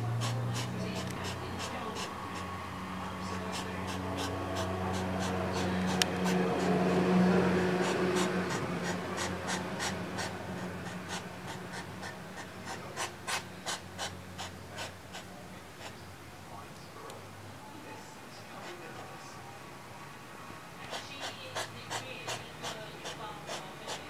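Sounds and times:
hedgehog puffing: 0:00.0 - 0:16.0, 0:20.8 - 0:24.0
hedgehog snorting and huffing: 0:00.0 - 0:16.0, 0:20.8 - 0:24.0.

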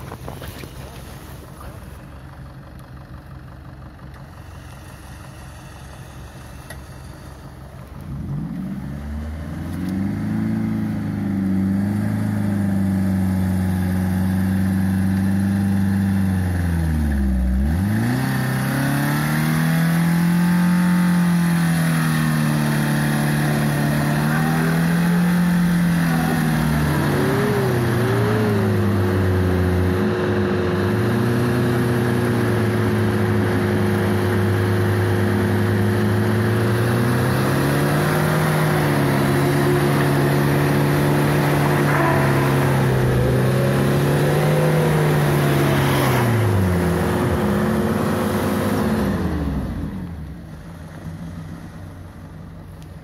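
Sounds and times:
engine revving hard: 0:08.2 - 0:50.0.

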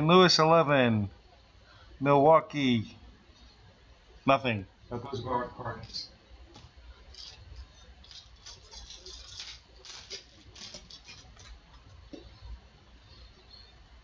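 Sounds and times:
trading cards rustling and sliding: 0:05.8 - 0:12.6.

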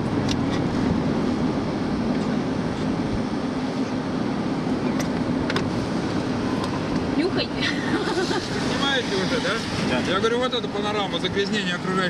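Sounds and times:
car road and engine noise: 0:00.0 - 0:12.0.

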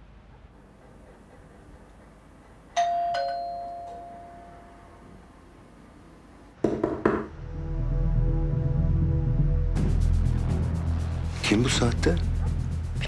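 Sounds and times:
two-note doorbell chime: 0:02.8 - 0:05.0.

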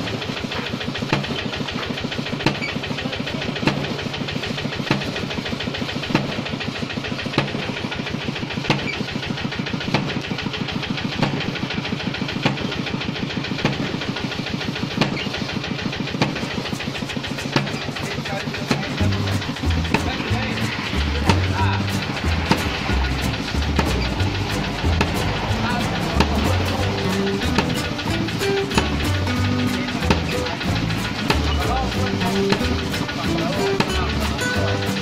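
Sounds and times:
small engine chugging: 0:00.0 - 0:35.0
wooden pestle thudding: 0:01.0 - 0:02.8, 0:04.8 - 0:05.3, 0:07.3 - 0:07.6, 0:08.6 - 0:09.0.

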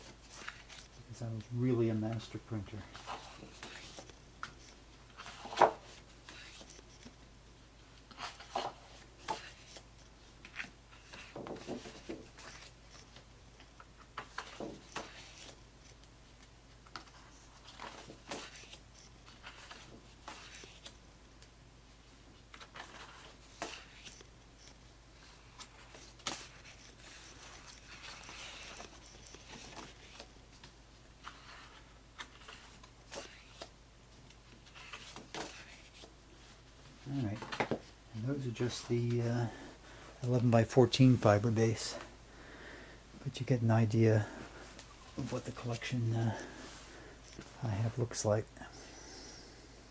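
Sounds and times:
photographic prints sliding and flicking: 0:00.0 - 0:07.2, 0:08.1 - 0:21.0, 0:22.4 - 0:36.2.

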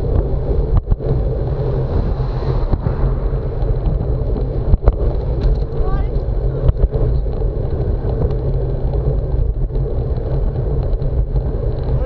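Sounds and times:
road and tyre noise: 0:00.0 - 0:12.0
wind rumbling on microphone: 0:00.0 - 0:12.0.

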